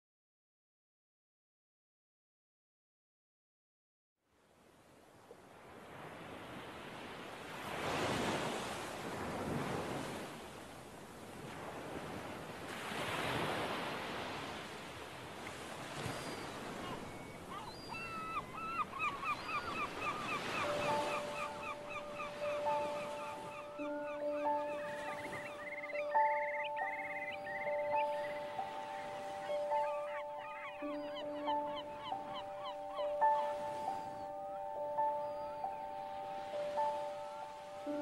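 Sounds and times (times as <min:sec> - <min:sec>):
ocean waves washing in: 0:04.5 - 0:29.9
high chirping calls: 0:16.0 - 0:35.9.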